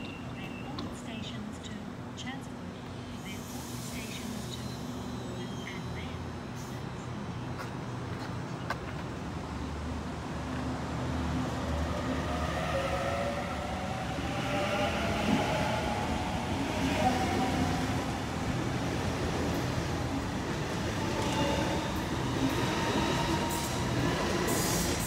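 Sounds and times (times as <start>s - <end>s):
train wheels rumbling on rails: 10.5s - 25.0s.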